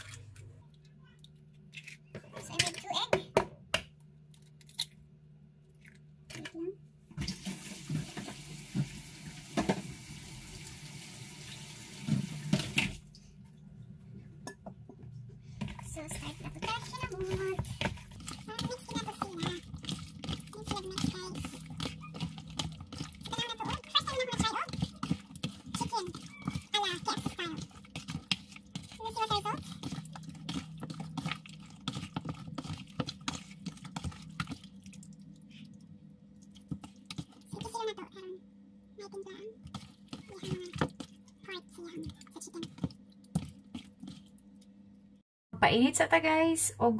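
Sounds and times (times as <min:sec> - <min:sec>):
tap running into sink: 0:07.2 - 0:10.0, 0:11.9 - 0:13.0
hands squelching raw chicken: 0:16.1 - 0:37.8.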